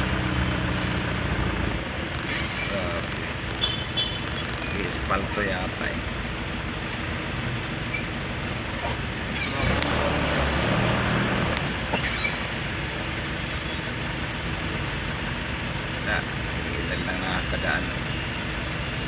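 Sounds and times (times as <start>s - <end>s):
loud vehicle engine: 0.0s - 19.0s
slow road traffic: 0.0s - 19.0s
vehicle engines idling: 0.0s - 19.0s.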